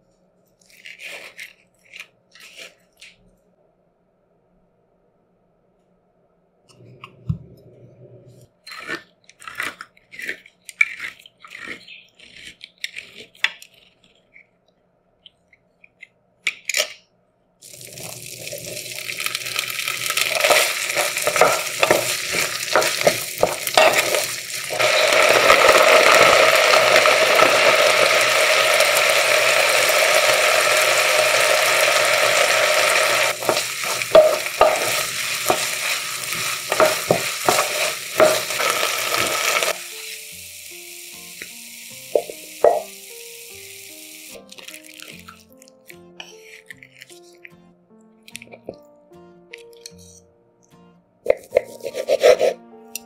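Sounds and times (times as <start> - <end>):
utensil scraping in a pan: 0.6 - 3.2, 18.0 - 30.0, 30.7 - 40.0, 51.3 - 52.6
food sizzling in a pan: 17.6 - 45.5
dishes and utensils clinking: 20.3 - 25.9, 33.3 - 39.7, 42.1 - 43.0.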